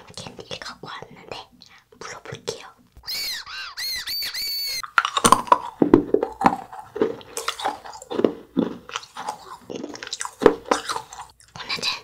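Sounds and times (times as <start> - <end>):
candy whistle: 3.0 - 4.8
hard candy crunching: 3.1 - 12.0.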